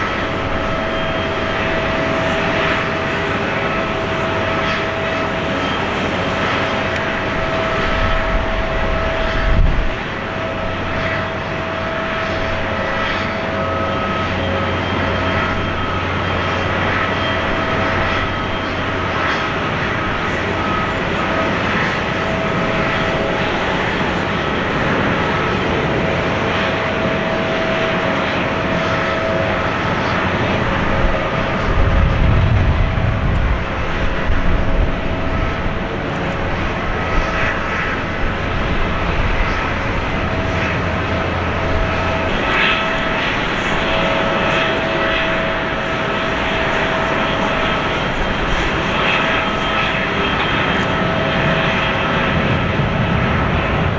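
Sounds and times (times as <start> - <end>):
jet engines whining: 0.0 - 53.9
low rumble: 30.9 - 36.0.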